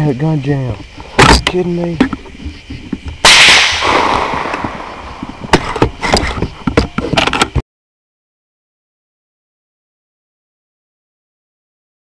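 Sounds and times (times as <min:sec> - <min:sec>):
loud blast: 0:03.2 - 0:05.2
sharp clicks and knocks: 0:04.3 - 0:07.6.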